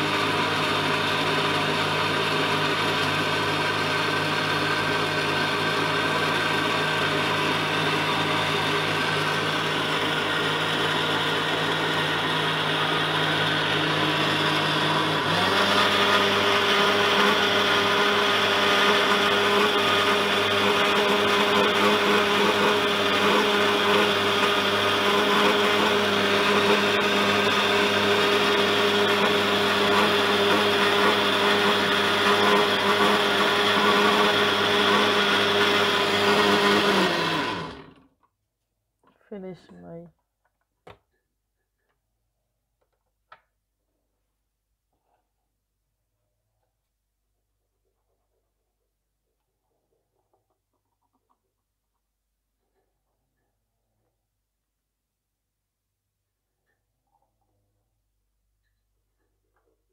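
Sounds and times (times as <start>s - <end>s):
blender motor whirring: 0.0s - 38.1s.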